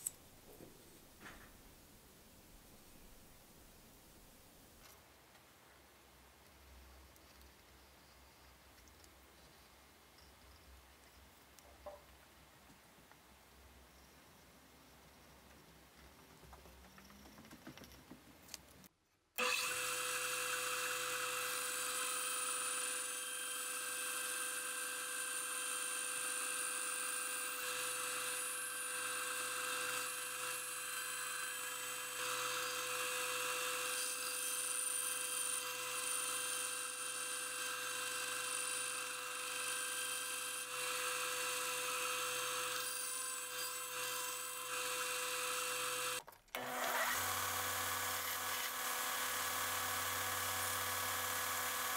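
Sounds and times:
band saw cutting wood: 19.4s - 51.9s.

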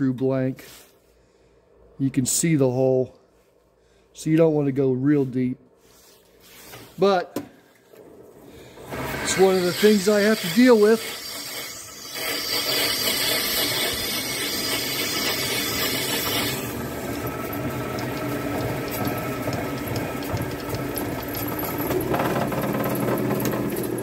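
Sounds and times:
lathe humming: 8.8s - 24.0s
drill boring into plastic hiss: 8.9s - 16.8s.

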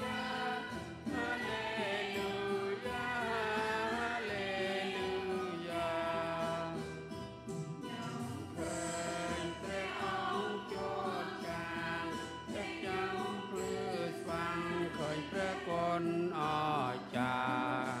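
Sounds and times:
choir singing a hymn: 0.0s - 7.0s, 8.6s - 18.0s.

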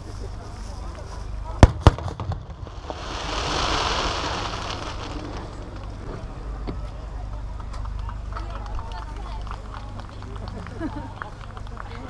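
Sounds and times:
firework stars hissing: 2.2s - 6.6s.

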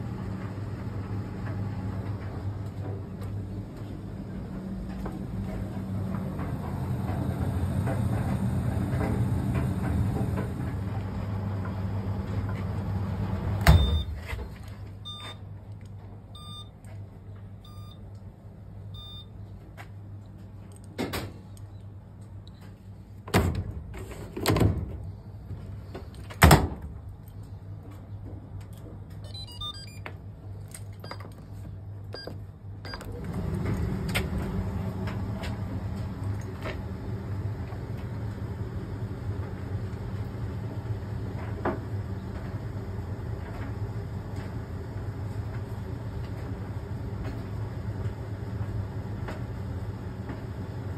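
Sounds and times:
dryer drum motor humming: 0.0s - 15.2s, 33.0s - 50.9s
dryer stopping clunk: 4.5s - 14.6s
short electronic beeps: 13.8s - 14.2s, 15.1s - 15.4s, 16.4s - 16.7s, 17.7s - 18.0s, 19.0s - 19.3s, 29.2s - 30.0s.

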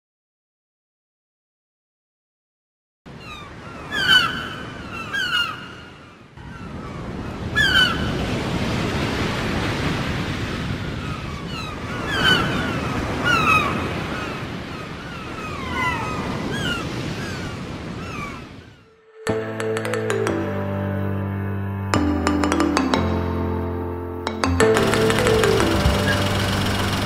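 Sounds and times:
surf washing on a beach: 6.7s - 18.6s.

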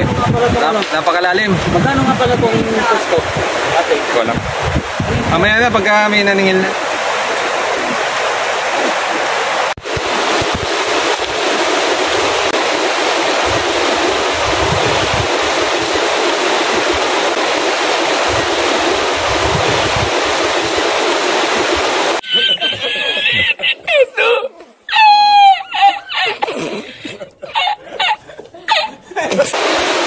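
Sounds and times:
river water rushing over rocks: 0.0s - 22.2s, 29.5s - 30.0s.

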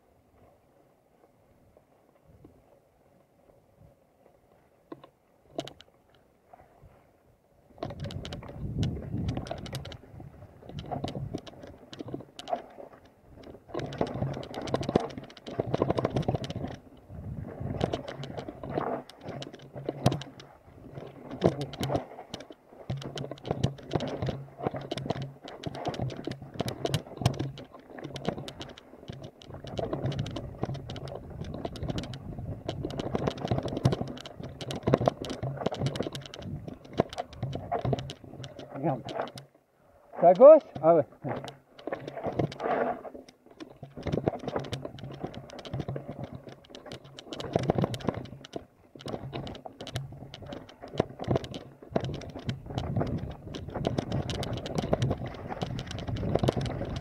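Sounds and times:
bike rattling over rough trail: 0.0s - 57.0s
tyre rumble: 40.1s - 57.0s.

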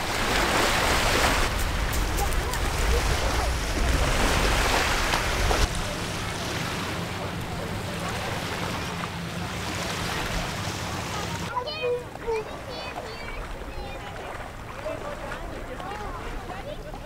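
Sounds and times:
soft water noise: 0.0s - 17.0s
surf: 0.0s - 17.0s
steady low hum: 1.6s - 11.5s.

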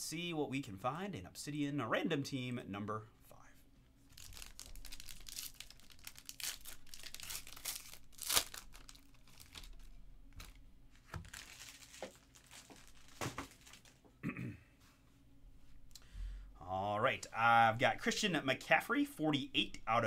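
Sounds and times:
wrapper tearing and crinkling: 4.1s - 14.0s.

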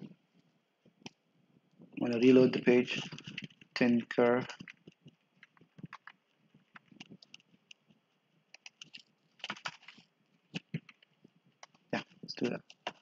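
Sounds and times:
computer keyboard typing: 3.0s - 7.9s, 8.6s - 11.8s, 12.4s - 13.0s.

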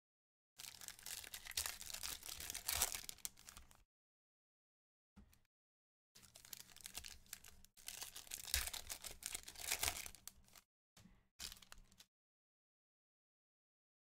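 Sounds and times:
foil wrapper crinkling: 0.6s - 3.8s, 6.2s - 10.6s, 11.4s - 12.0s.

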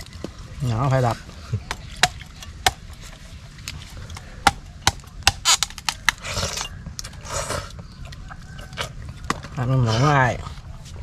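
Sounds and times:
hard food knocking and cracking: 1.6s - 3.1s, 3.7s - 6.2s, 8.7s - 9.6s
crunching bursts: 1.8s - 7.2s.

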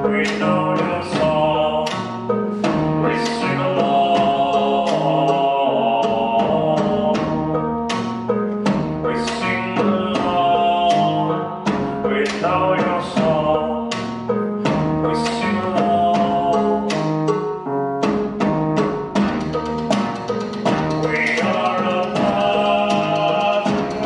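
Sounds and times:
held pitched notes: 0.0s - 24.0s
sharp percussive hits: 6.3s - 24.0s.

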